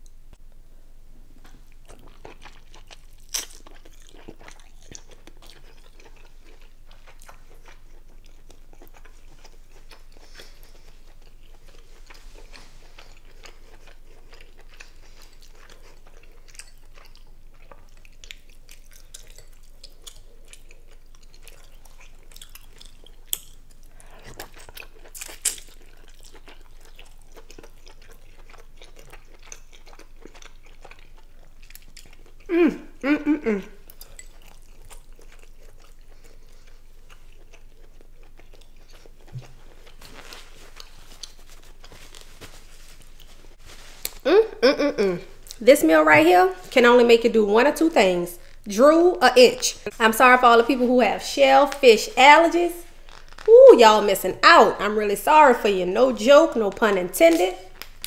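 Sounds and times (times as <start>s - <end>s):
chewing and lip smacking: 1.4s - 44.3s, 45.2s - 45.7s, 53.0s - 53.5s.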